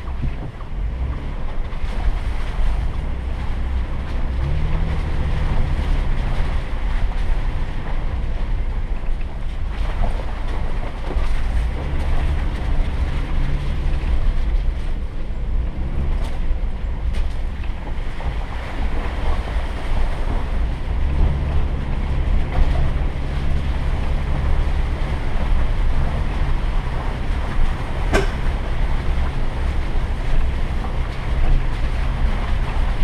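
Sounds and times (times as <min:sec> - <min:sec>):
engine running at low speed: 0:00.0 - 0:33.0
tyres on muddy trail: 0:00.0 - 0:33.0
short knocks: 0:28.0 - 0:28.8.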